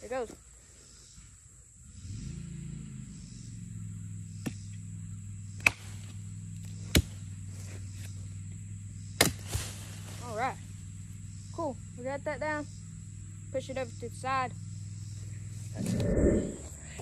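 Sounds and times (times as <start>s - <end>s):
steady low hum: 1.0s - 17.0s
machete chopping tree trunk: 4.4s - 4.8s, 5.5s - 7.3s, 9.1s - 10.1s.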